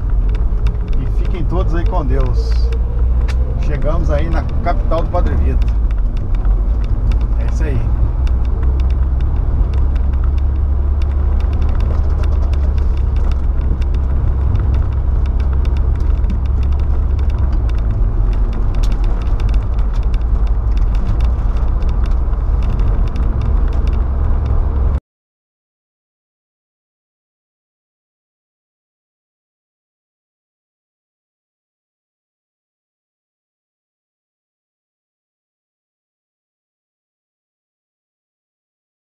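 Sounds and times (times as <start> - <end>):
engine and road noise rumble: 0.0 - 25.0.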